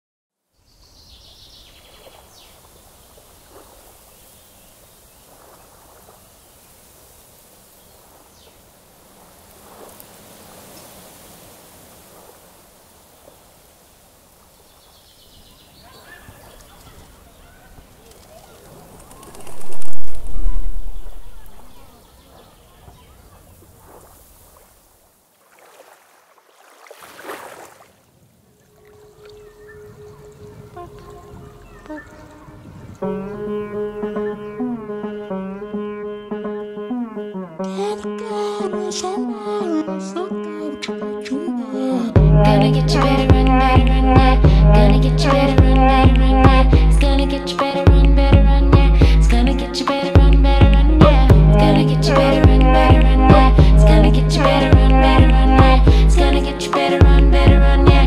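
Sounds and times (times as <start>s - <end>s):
lake water lapping: 0.8s - 36.8s
low rumbling noise: 19.3s - 21.9s.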